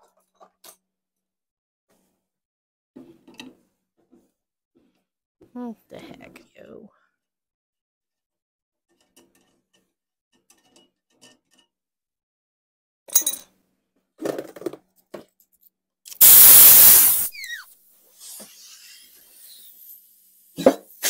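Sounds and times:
compressed air blast from blow gun: 16.2s - 17.6s.

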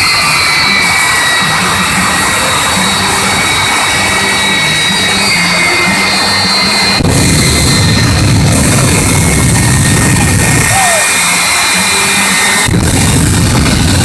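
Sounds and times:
afterburners blasting: 0.0s - 14.0s
jet engines roaring: 0.0s - 14.0s.

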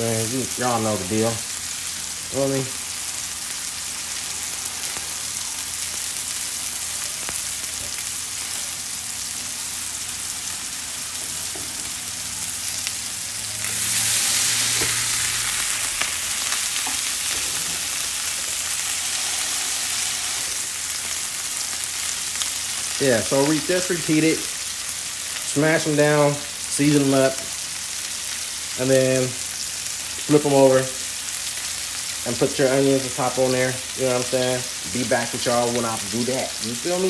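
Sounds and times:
burger patties sizzling on griddle: 0.0s - 37.0s.

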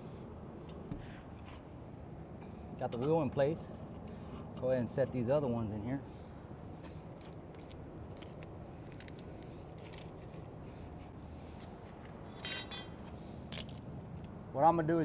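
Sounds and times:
low shop hum: 0.0s - 15.0s
metallic clinks of lug nuts: 2.8s - 3.4s.

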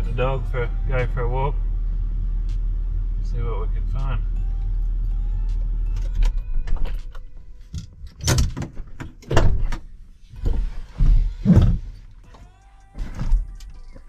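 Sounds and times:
car doors opening and shutting: 5.4s - 14.0s.

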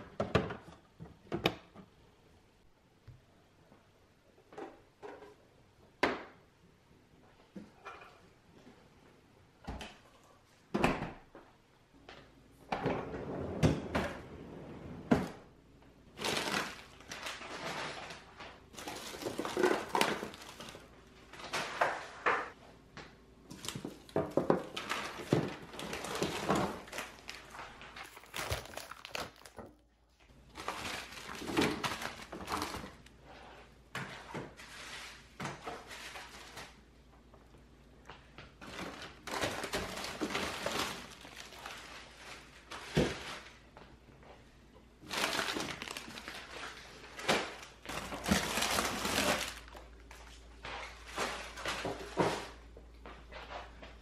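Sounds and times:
plastic packaging crinkling: 16.2s - 21.6s, 23.5s - 29.8s, 30.5s - 33.1s, 38.6s - 42.6s, 45.0s - 50.4s
packages set down thunks: 23.5s - 29.8s.

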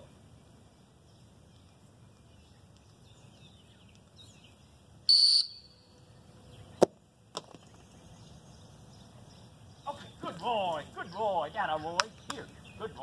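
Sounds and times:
shrill dog whistle blast: 5.1s - 5.8s.

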